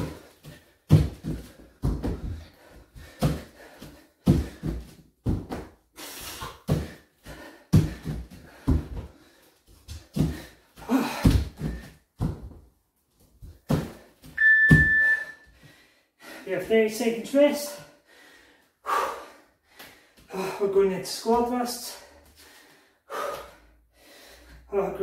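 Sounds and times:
hard breathing: 0.0s - 5.1s, 5.9s - 12.0s, 15.4s - 16.5s, 17.8s - 20.7s, 22.0s - 24.7s
feet and hands thudding on floor: 0.0s - 15.2s.

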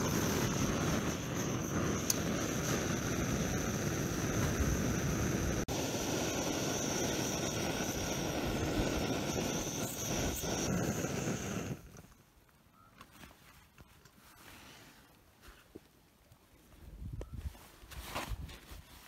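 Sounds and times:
gas stove roaring: 0.0s - 12.2s.

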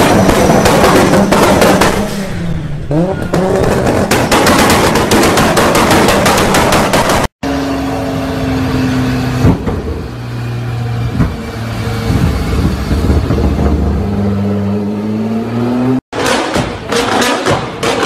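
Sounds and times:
rapid exhaust popping: 0.0s - 2.2s, 2.9s - 7.3s
car engine revving: 0.0s - 9.8s, 10.4s - 16.0s.

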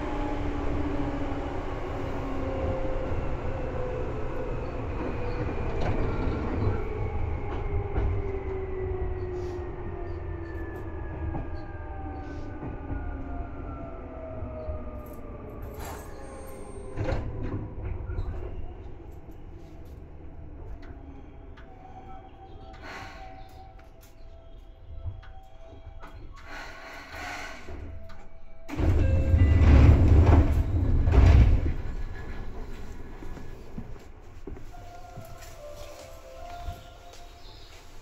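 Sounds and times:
train wheels rumbling on rail: 0.0s - 38.0s.

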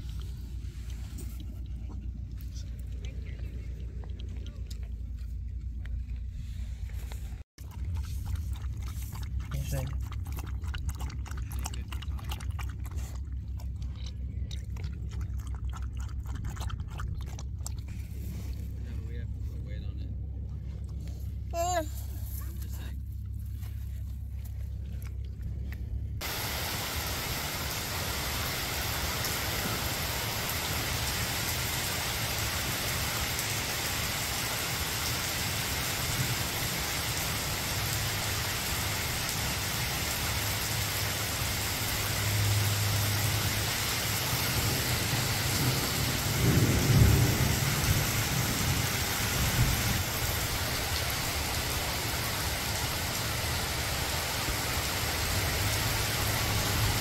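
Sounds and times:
heavy rain on pavement: 26.2s - 57.0s
thunder rumble: 42.2s - 57.0s.

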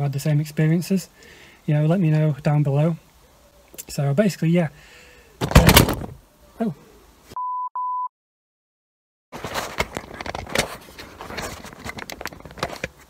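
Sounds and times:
phone handling rustling and clicking: 5.4s - 6.2s, 9.4s - 13.0s.

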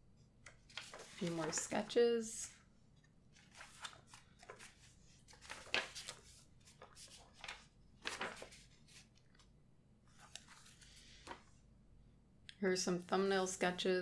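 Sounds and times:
paper pages rustling: 0.5s - 2.0s, 3.3s - 9.5s, 10.1s - 11.5s.

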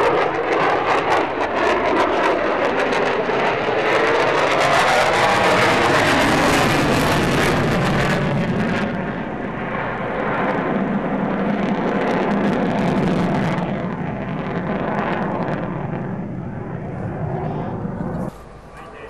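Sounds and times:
jet engine deep rumble: 0.0s - 19.0s.

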